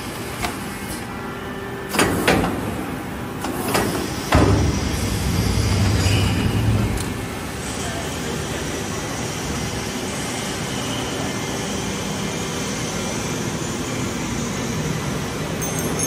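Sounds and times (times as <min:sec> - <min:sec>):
slitting machine running: 0:15.4 - 0:16.0.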